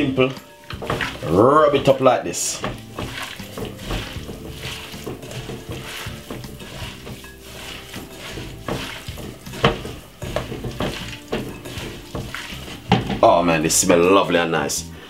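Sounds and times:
hands squishing raw meat: 0.2s - 13.3s
knocks against glass bowl: 8.7s - 13.3s.

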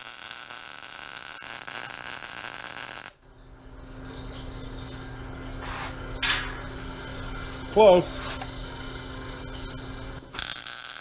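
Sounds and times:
welder arc sizzling: 0.0s - 3.2s, 7.0s - 11.0s.

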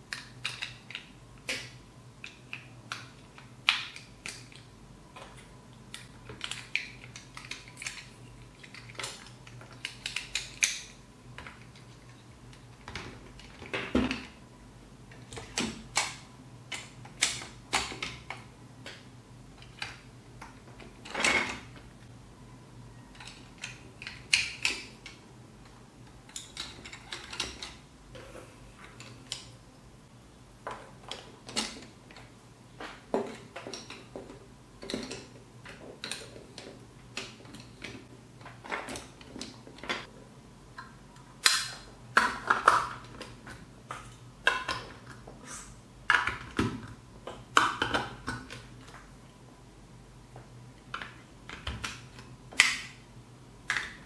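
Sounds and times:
plastic building bricks clicking: 0.1s - 14.4s, 23.1s - 27.8s, 32.9s - 40.1s, 40.8s - 45.3s, 46.1s - 49.0s.

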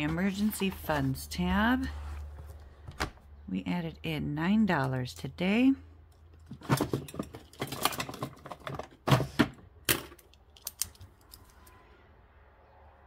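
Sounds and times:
pen and paper handled on desk: 0.0s - 2.6s.

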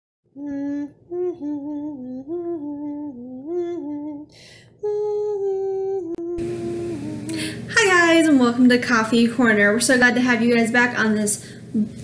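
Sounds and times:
woman humming a tune: 0.3s - 7.6s.

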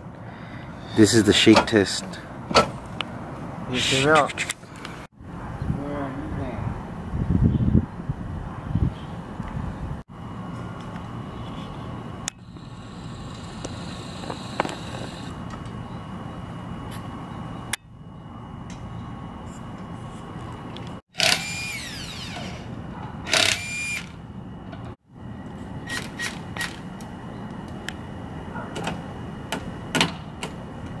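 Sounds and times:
impact wrench whine: 12.3s - 15.4s, 21.1s - 24.2s.

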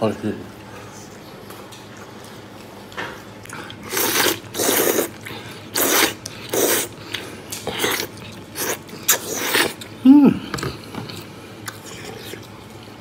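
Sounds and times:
person slurping noodles: 3.7s - 7.0s, 7.6s - 10.4s.

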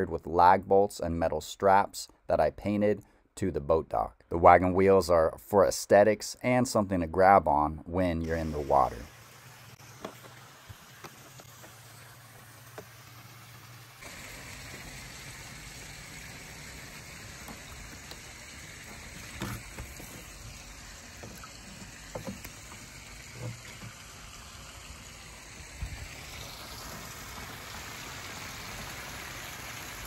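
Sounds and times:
waterfall splashing into pond: 8.2s - 30.0s.

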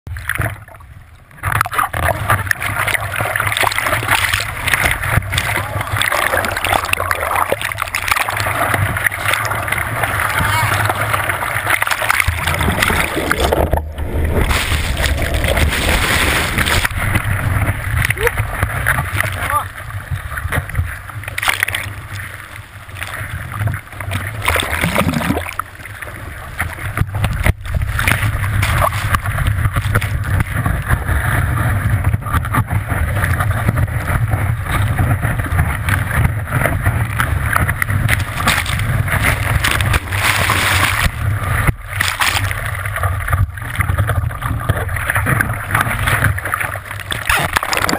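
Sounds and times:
muffled surf rushing and splashing: 0.1s - 47.9s
wind rumbling on camera housing: 8.4s - 22.2s, 26.6s - 47.9s.

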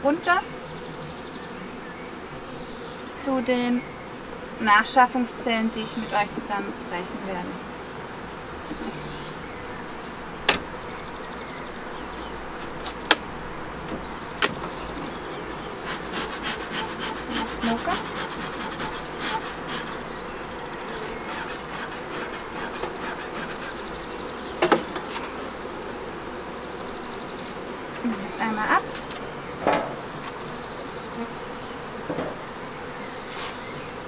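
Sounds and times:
bees buzzing: 0.0s - 34.0s
knocks of wooden hive boxes: 10.4s - 11.0s, 11.9s - 20.0s, 20.8s - 25.4s, 27.9s - 32.6s.

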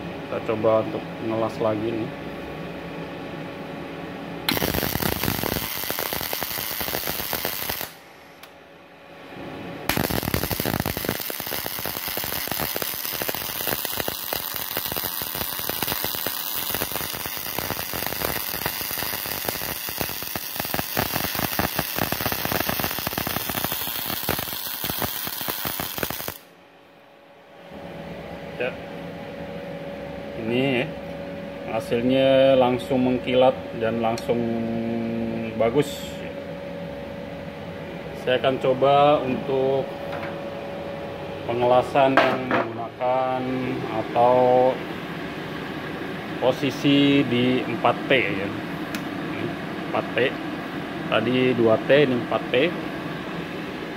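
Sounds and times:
welding arc crackling: 4.5s - 8.0s, 9.9s - 26.5s.

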